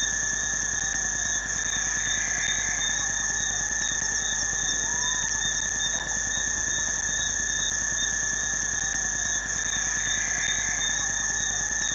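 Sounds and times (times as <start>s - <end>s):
insects trilling: 0.0s - 11.9s.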